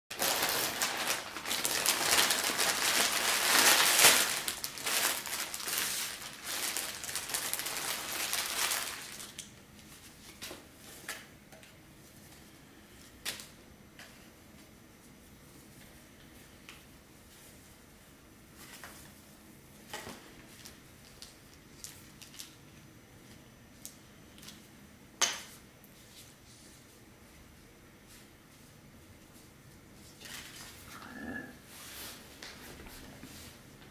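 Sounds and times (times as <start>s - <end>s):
plastic packaging crinkling: 0.1s - 11.2s, 20.0s - 22.8s.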